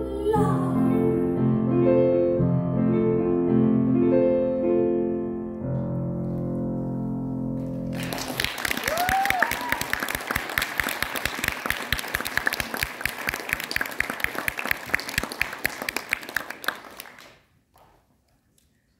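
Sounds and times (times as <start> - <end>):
audience applauding: 7.9 - 17.5.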